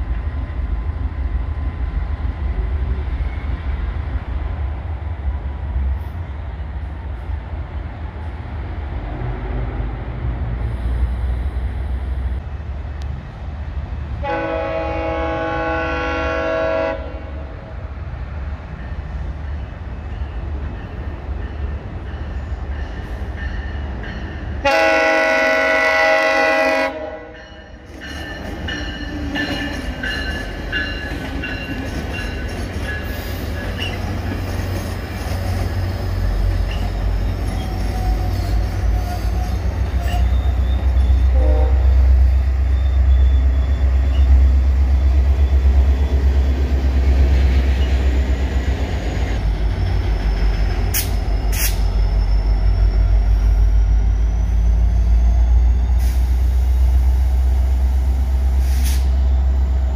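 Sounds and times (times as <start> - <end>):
diesel locomotives rumbling: 0.0 - 59.9
train air horn blasts: 14.2 - 17.5, 24.6 - 27.4, 41.2 - 42.2, 58.6 - 59.1
train wheels squealing: 18.8 - 24.6, 27.4 - 59.9.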